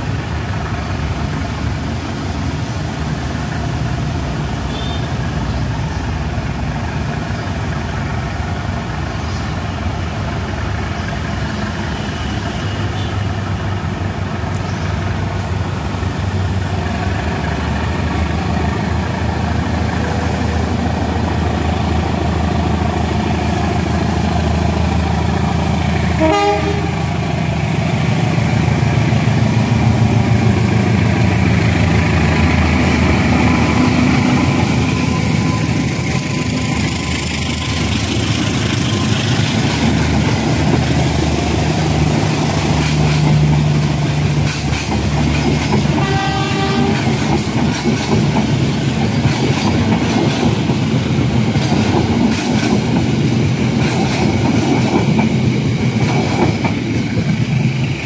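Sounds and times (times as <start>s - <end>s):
diesel locomotive engine hum: 0.0s - 58.0s
train horn toot: 26.1s - 27.1s, 45.9s - 47.2s.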